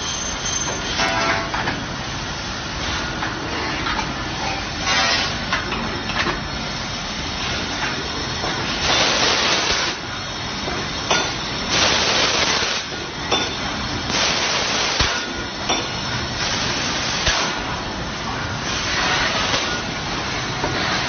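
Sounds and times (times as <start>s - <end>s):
air hissing bursts: 14.1s - 15.2s.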